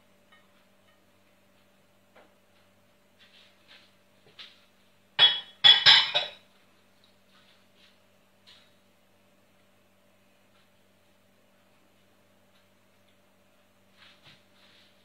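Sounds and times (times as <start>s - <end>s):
dishware clattering in metal sink: 5.2s - 6.4s.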